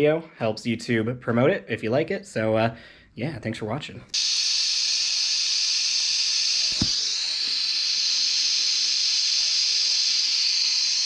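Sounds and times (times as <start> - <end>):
welding arc hissing: 4.2 - 11.0.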